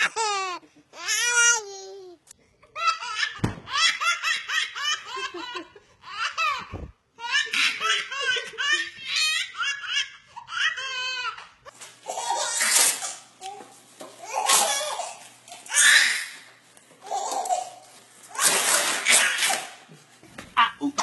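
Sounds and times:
baby laughing: 0.0 - 2.0
baby squealing: 15.7 - 16.4.

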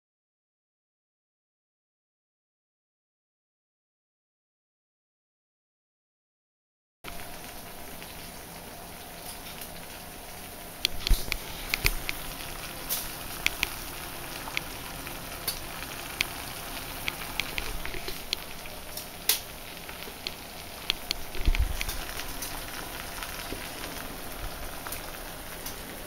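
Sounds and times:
sauce sizzling in frying pan: 7.1 - 26.0
spitting pops and crackles: 10.8 - 14.8, 15.4 - 25.0.

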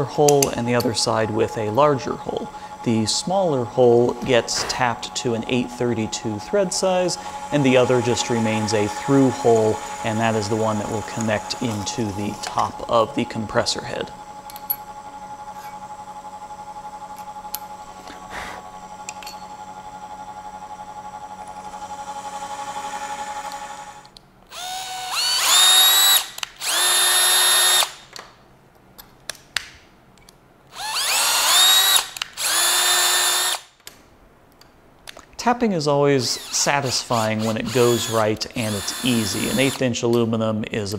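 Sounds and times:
drill press running: 0.0 - 28.0, 30.7 - 33.7, 36.3 - 39.8
cordless drill whirring: 2.0 - 19.1, 19.8 - 28.1, 30.7 - 33.7, 36.2 - 39.8.

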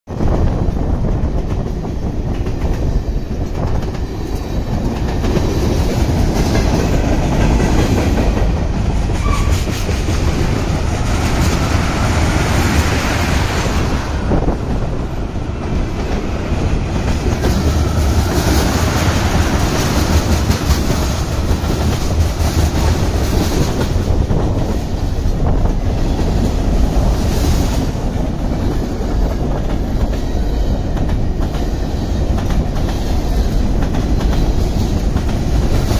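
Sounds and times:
freight train rumbling past: 0.1 - 35.9
wheels clacking over rail joints: 1.4 - 35.9.

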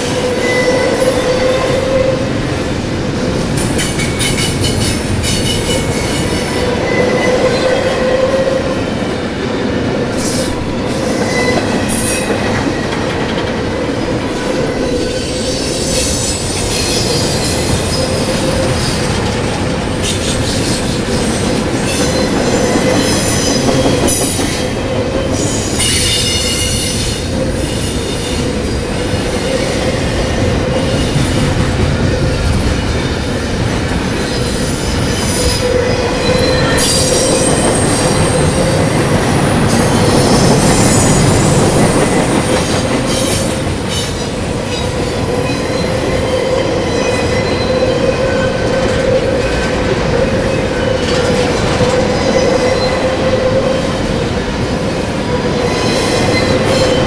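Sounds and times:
steel-on-steel squeals: 0.0 - 2.3, 3.9 - 8.9, 10.2 - 12.9, 20.0 - 31.4, 34.2 - 54.2, 55.5 - 57.0
steel wheels rumbling on rail: 0.0 - 57.0.

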